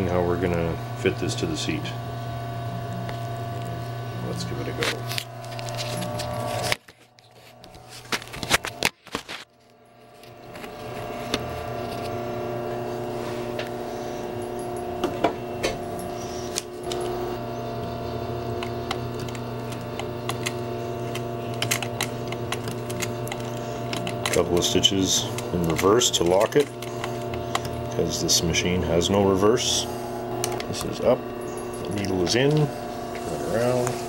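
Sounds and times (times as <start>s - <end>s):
sewing machine motor hum: 0.0s - 34.0s
sewing machine mechanism clicks: 18.6s - 28.0s.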